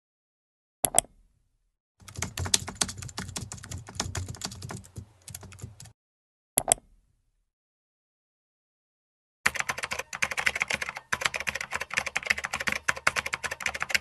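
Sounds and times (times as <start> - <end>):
computer keyboard typing: 2.0 - 6.0, 9.5 - 14.0.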